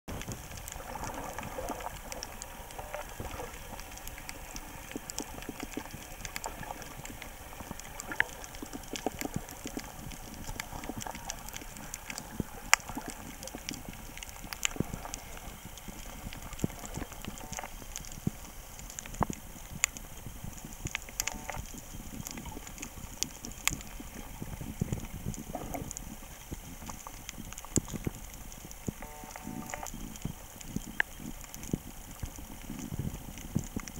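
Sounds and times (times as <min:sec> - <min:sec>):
sharp clicks and crackles: 0:00.1 - 0:33.9
steady hiss: 0:00.1 - 0:33.9.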